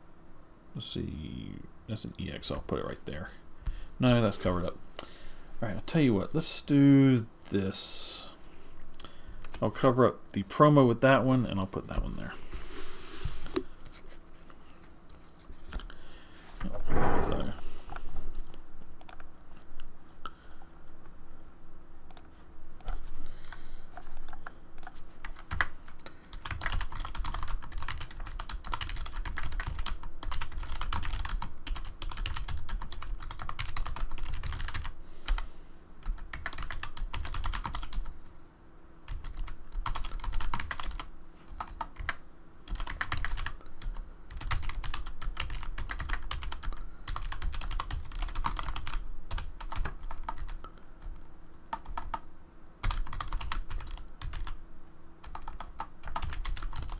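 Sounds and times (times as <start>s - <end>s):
typing on computer keyboard: 24.2s - 35.4s, 36.0s - 38.1s, 39.1s - 52.2s, 52.8s - 54.6s, 55.2s - 56.9s.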